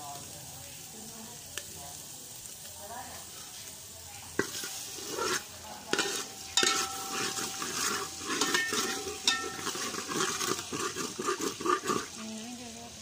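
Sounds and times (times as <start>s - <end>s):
light sizzle: 0.0s - 13.0s
ladle scraping metal pot: 4.4s - 12.4s.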